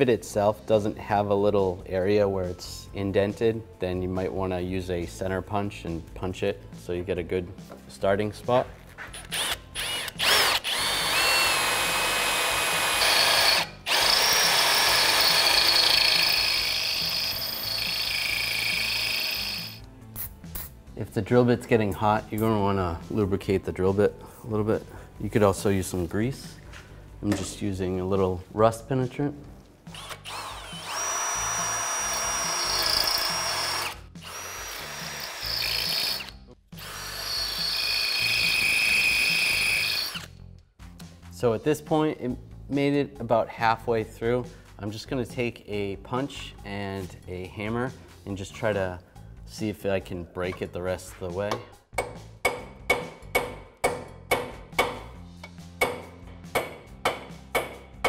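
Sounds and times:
electric drill boring into metal: 9.2 - 19.8, 29.9 - 40.4
hammer striking steel punch: 51.5 - 55.2, 55.8 - 58.0.

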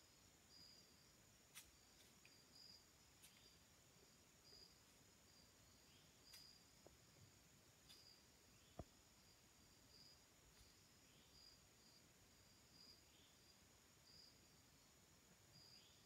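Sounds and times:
crickets chirping: 0.0 - 16.0
steady high hiss: 0.0 - 16.0.

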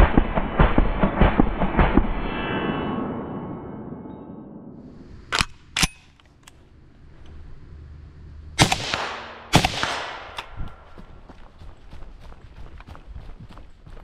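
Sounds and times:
rifle shots echoing: 8.6 - 10.9
footsteps through dry leaves: 10.7 - 14.0.

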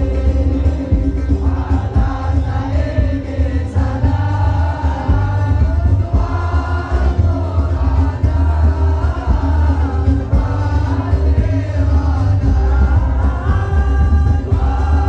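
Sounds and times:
band with bass: 0.0 - 15.0
other voices singing: 0.0 - 15.0
steady drum beat: 0.0 - 15.0.

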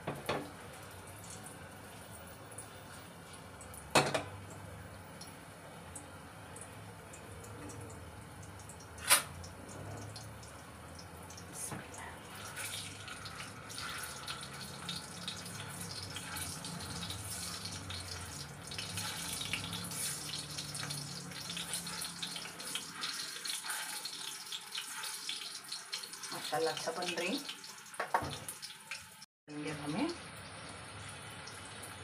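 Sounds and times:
food sizzling in oil: 8.1 - 32.0.

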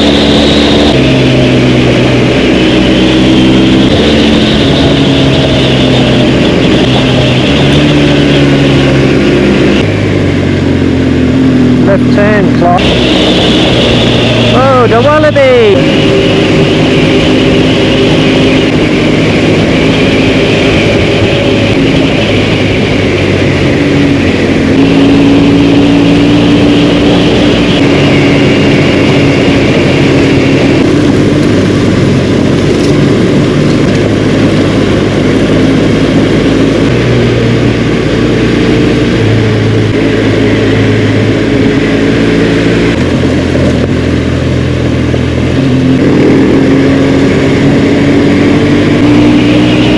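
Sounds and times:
motorcycle engine running: 0.0 - 49.9
wind noise on microphone: 15.5 - 49.9.

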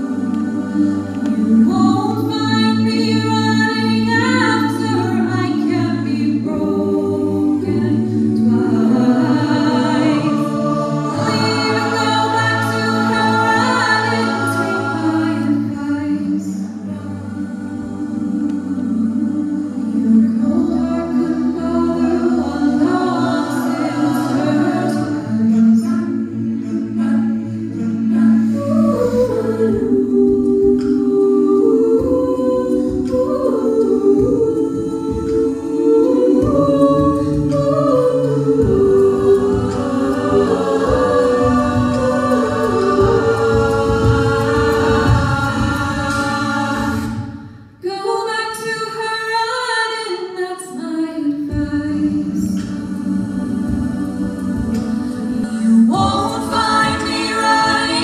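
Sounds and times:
backing vocal harmonies: 0.0 - 58.0
female lead singing: 0.0 - 58.0
rhythmic low pulse: 16.9 - 47.4.

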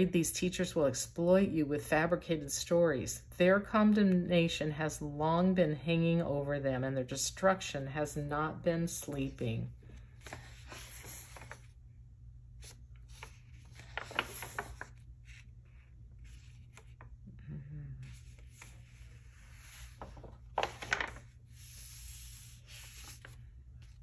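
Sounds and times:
low steady hum: 0.0 - 24.0
paper rustling: 9.0 - 11.8, 12.5 - 17.2, 18.0 - 24.0.

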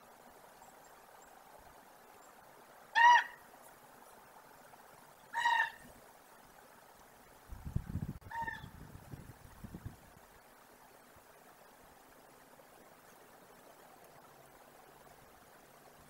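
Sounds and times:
bird honk-like call: 2.9 - 3.4, 5.3 - 5.9, 8.3 - 8.7.

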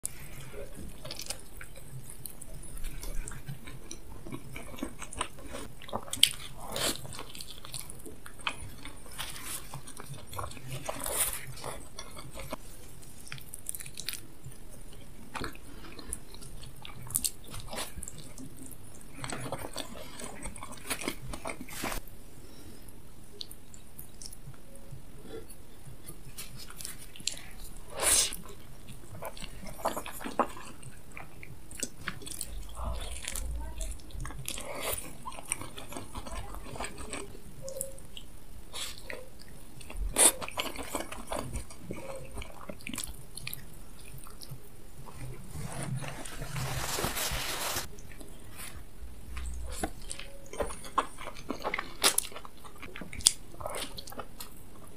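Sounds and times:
person chewing food: 0.0 - 54.9
wet chewing clicks: 49.3 - 54.9.

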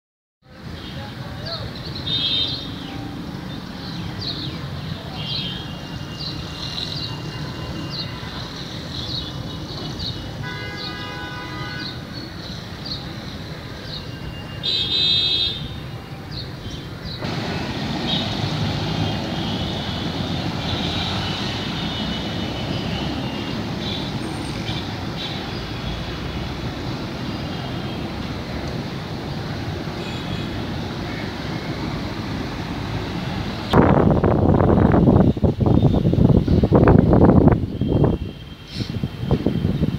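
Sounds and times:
city traffic rumble: 0.4 - 39.9
vehicle horns honking: 2.1 - 2.8, 10.3 - 12.0, 14.4 - 16.0, 17.3 - 26.5, 30.0 - 31.7.

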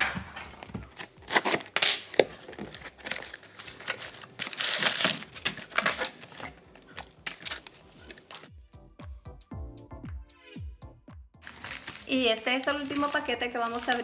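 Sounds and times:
packing paper crinkling and rustling: 0.6 - 8.5, 11.4 - 14.0
packing tape being slit: 0.8 - 8.5.

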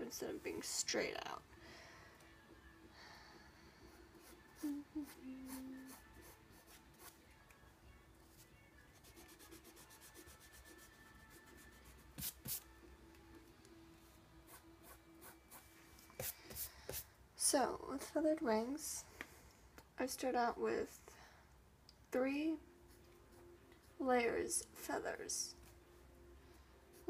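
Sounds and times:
pencil scratching on paper: 4.1 - 7.2, 9.0 - 12.6.

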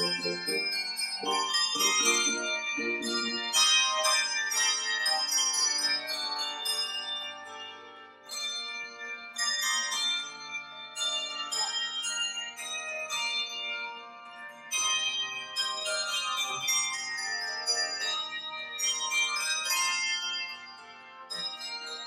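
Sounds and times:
handbell chords ringing: 0.0 - 7.3, 14.7 - 22.0.

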